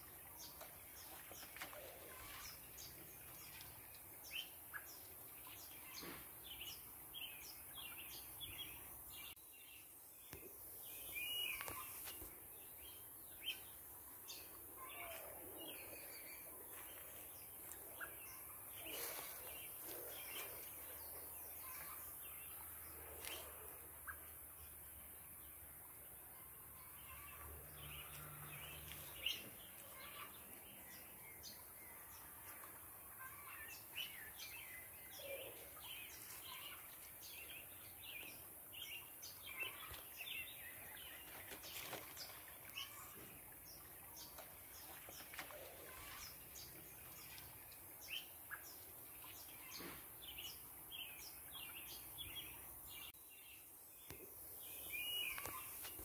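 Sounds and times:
birds chirping: 0.0s - 24.9s, 26.8s - 56.0s.

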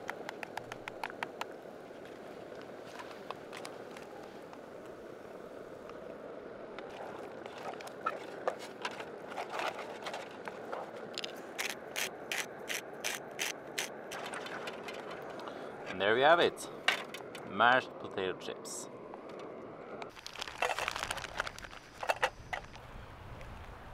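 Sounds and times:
utensil scraping a camping pan: 6.9s - 15.4s.

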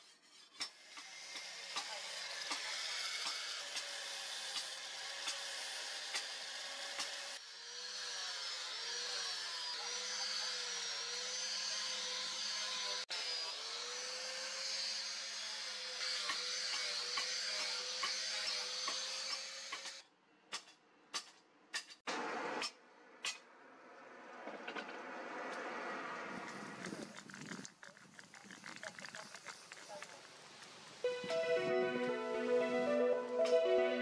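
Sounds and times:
angle grinder on steel: 0.0s - 20.0s.

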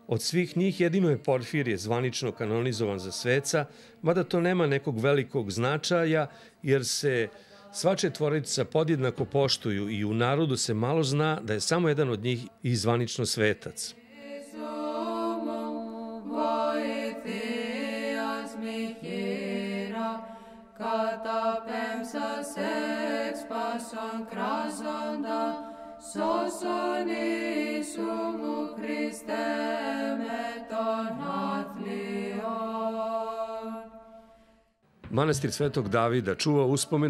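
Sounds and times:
voices chanting a melody: 14.1s - 34.0s.

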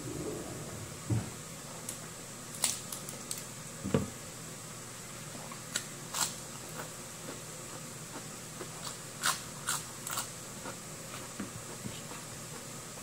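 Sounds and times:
person chewing lettuce: 5.4s - 12.7s.

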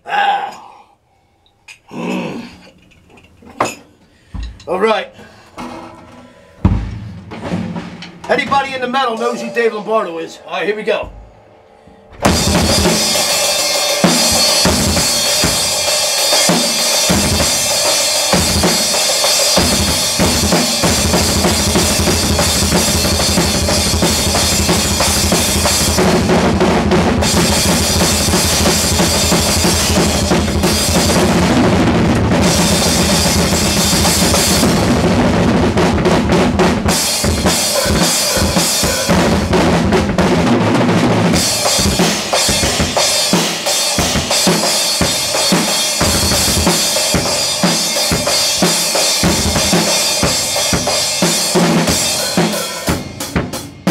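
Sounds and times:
cymbals crashing: 5.8s - 31.7s, 36.9s - 39.8s, 41.3s - 53.3s
drum kit playing fast: 6.6s - 11.6s, 12.2s - 53.9s.

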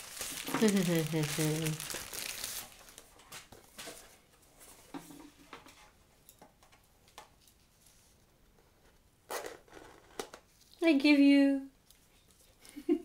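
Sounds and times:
packaging rustling: 0.0s - 3.5s.

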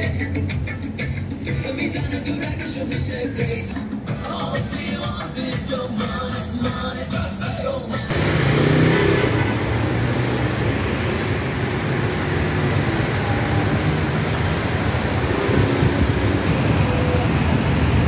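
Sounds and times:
background music: 0.0s - 8.1s
city traffic passing cars: 0.0s - 18.0s.

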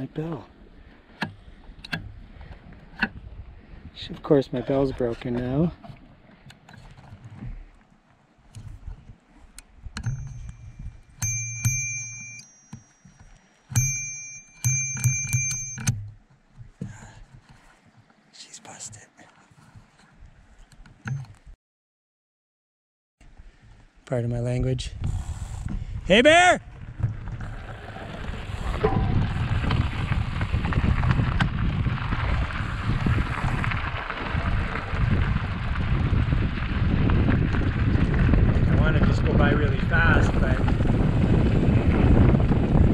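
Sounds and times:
wind buffeting microphone: 0.6s - 5.7s, 8.5s - 11.2s, 24.6s - 42.9s
bicycle bell ringing: 10.0s - 16.0s
bicycle tyres on gravel: 26.2s - 42.9s.

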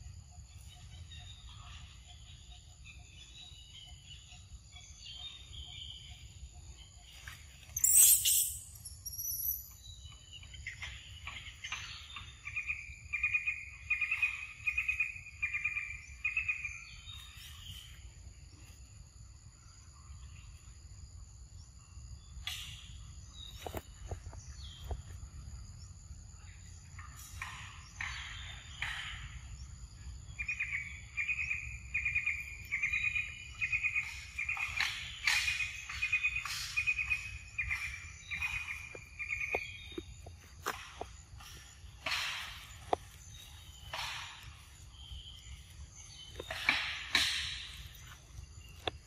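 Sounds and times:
birds calling: 0.0s - 18.8s, 22.1s - 49.0s
insects droning: 0.0s - 49.0s.

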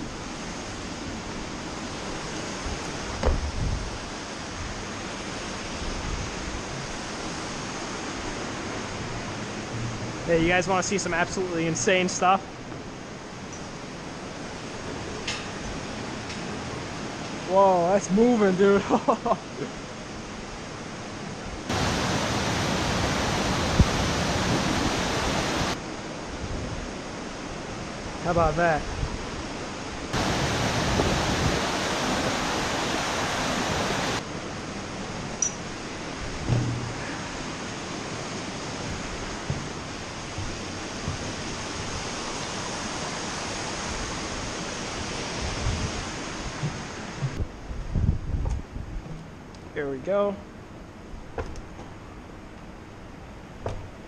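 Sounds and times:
rushing water: 0.0s - 47.4s
short low thump: 3.2s - 3.6s, 36.4s - 37.1s
river water rushing over rocks: 21.7s - 25.9s, 30.0s - 36.4s.

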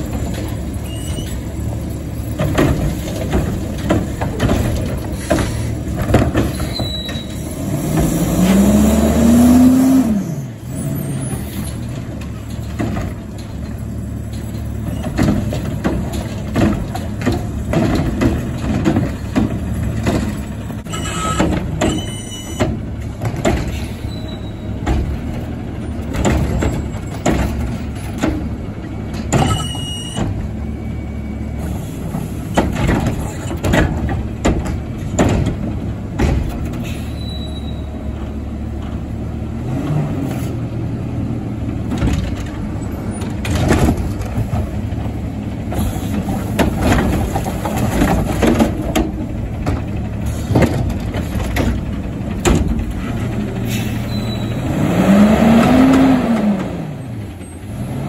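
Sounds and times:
knocks and clatter: 0.0s - 8.8s, 11.2s - 30.6s, 32.1s - 36.9s, 41.7s - 53.6s
diesel engine running: 0.0s - 58.0s
high squeals: 0.8s - 1.5s, 29.4s - 31.3s, 37.0s - 37.9s, 53.9s - 54.7s.

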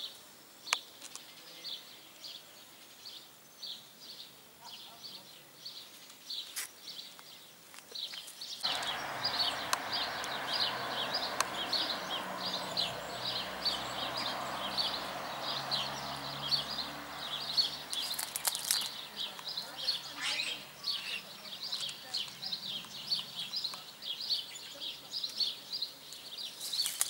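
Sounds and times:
small bird chirping: 5.8s - 27.0s.

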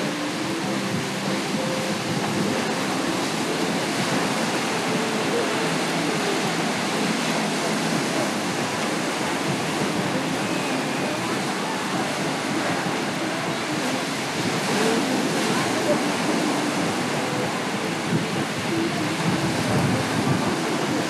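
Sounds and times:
faint voices of people: 0.0s - 21.0s
waves breaking on beach: 0.0s - 21.0s.

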